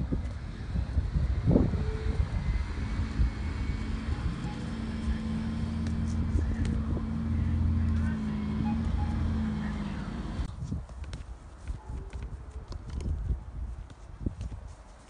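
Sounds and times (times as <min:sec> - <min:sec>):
low engine drone: 0:00.0 - 0:10.5
low rumble: 0:00.0 - 0:10.5.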